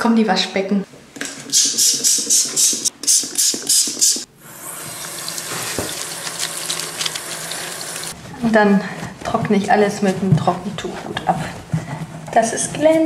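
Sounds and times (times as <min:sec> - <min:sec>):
trigger spray bottle squirting: 0:01.2 - 0:04.3
tap water running into basin: 0:02.0 - 0:08.2.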